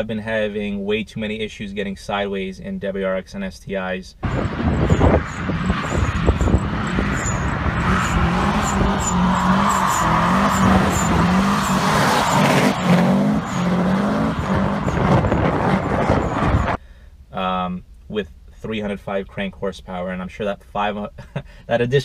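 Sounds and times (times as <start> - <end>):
car engine revving hard: 4.2 - 16.8
tyres squealing: 4.2 - 16.8.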